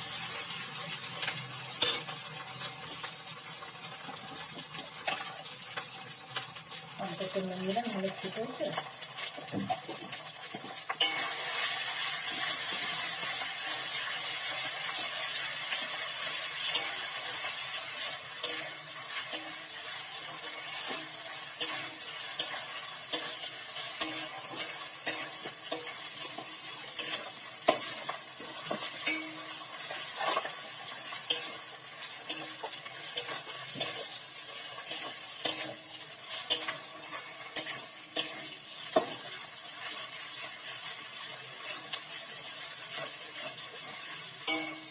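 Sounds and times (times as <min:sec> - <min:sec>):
onions sizzling in oil: 0:00.0 - 0:44.9
spatula scraping and knocking pan: 0:12.3 - 0:40.4, 0:42.6 - 0:44.9.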